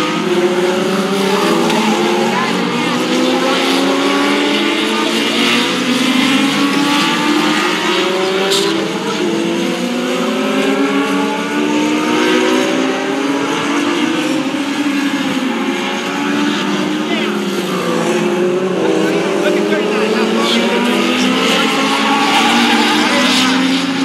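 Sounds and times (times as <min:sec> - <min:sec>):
race car engines accelerating: 0:00.0 - 0:24.0.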